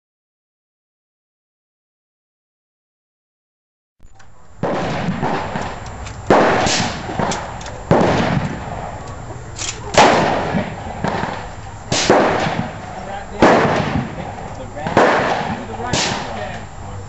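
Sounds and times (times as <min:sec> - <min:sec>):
faint gunshot pops: 0:04.2 - 0:08.7, 0:09.6 - 0:12.8, 0:13.4 - 0:16.6
loud gunshots with echo: 0:04.3 - 0:16.8.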